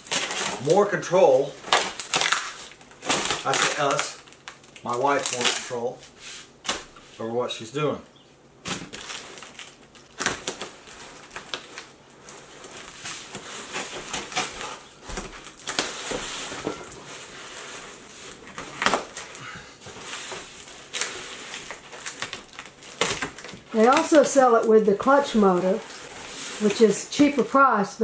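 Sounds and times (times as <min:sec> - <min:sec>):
knife slitting tape and cardboard: 0:00.0 - 0:00.7, 0:20.0 - 0:24.6.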